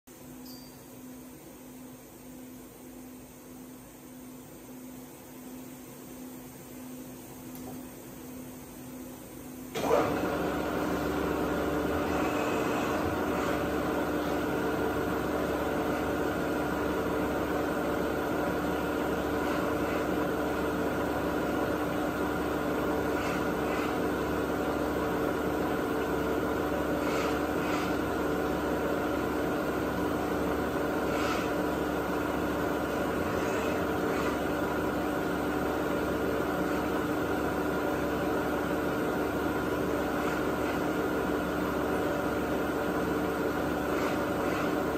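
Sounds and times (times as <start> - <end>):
milling machine motor hum and whine: 0.1 - 44.9
electric motor whirring: 11.9 - 14.5, 32.6 - 35.0.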